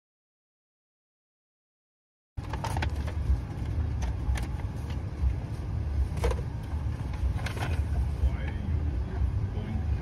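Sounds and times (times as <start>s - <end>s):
car engine idling: 2.4s - 10.0s.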